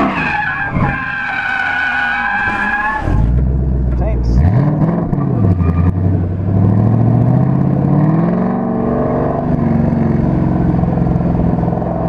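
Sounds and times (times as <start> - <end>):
car engine accelerating hard: 3.0 - 12.0.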